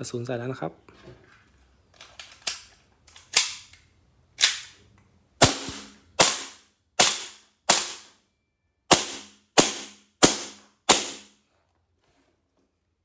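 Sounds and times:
airsoft pistol shots: 5.4 - 8.1, 8.9 - 11.3.

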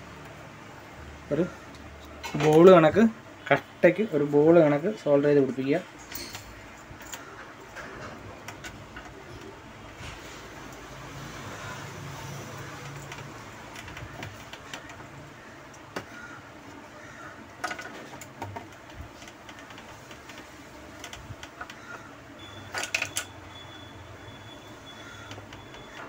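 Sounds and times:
steady low hum: 0.0 - 26.0
clicks and rustles of wire: 6.0 - 23.3.

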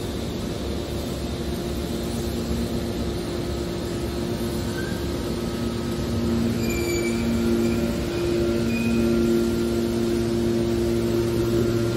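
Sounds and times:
hydraulic power unit droning: 0.0 - 11.9
high squeal: 4.7 - 5.1, 6.4 - 9.7.

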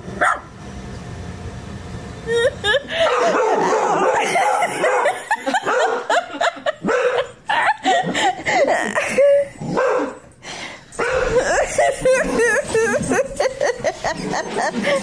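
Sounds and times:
dog barking: 0.2 - 0.5, 3.0 - 6.2, 6.8 - 7.3, 9.7 - 10.2, 11.0 - 11.4.

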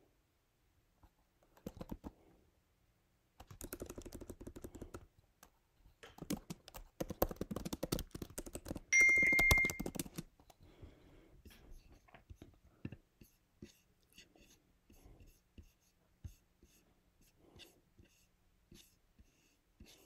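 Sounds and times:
keyboard typing: 1.5 - 2.2, 3.4 - 10.6
high electronic beep: 9.0 - 9.8.

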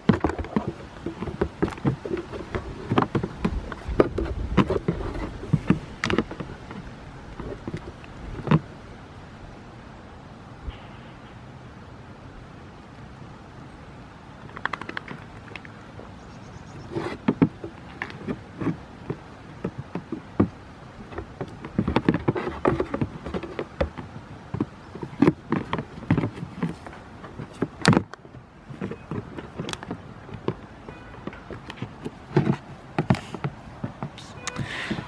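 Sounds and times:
goats knocking on plastic platforms: 0.0 - 8.7, 17.0 - 35.0.

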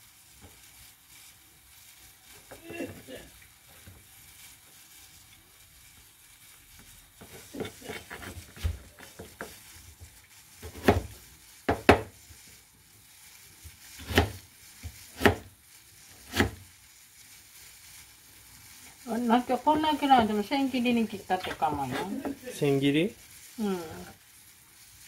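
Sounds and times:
knife chopping on plastic board: 7.2 - 9.6, 10.6 - 11.1, 11.7 - 12.1, 14.0 - 15.5, 16.2 - 16.6.

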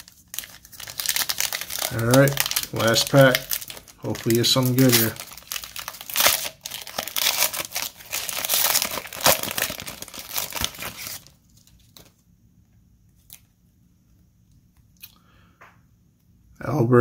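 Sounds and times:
foil wrapper tearing and crinkling: 0.0 - 12.1.

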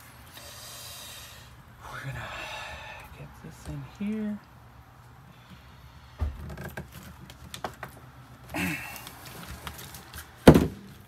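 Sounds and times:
person grunting: 8.6 - 9.0
sharp loud knock: 10.5 - 10.8.

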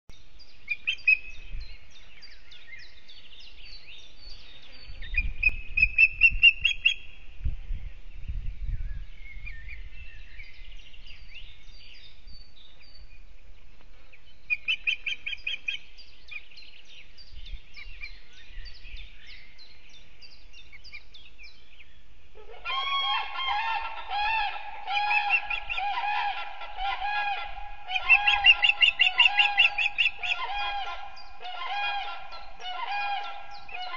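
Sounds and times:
birds chirping: 7.8 - 33.9.

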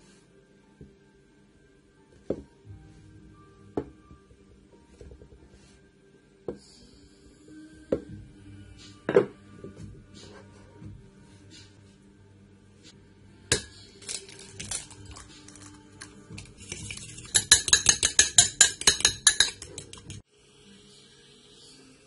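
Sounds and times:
fork whisking egg in ceramic bowl: 14.6 - 20.2
dishes knocking and clinking: 16.8 - 20.2.

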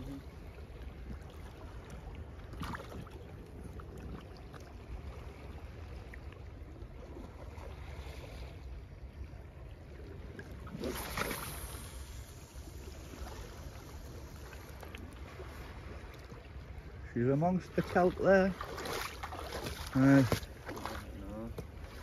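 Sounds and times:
water sloshing around legs: 0.7 - 8.0, 17.6 - 22.0.

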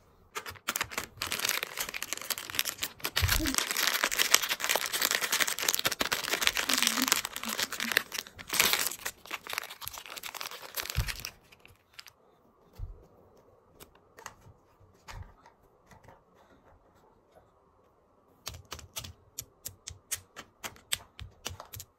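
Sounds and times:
plastic wrapper crinkling and tearing: 0.4 - 12.2.

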